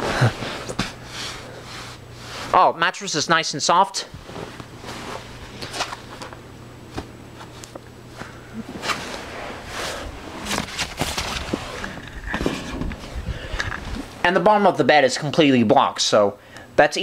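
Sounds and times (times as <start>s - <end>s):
low steady hum: 0.0s - 17.0s
bedding rustling and bumps: 8.7s - 14.2s.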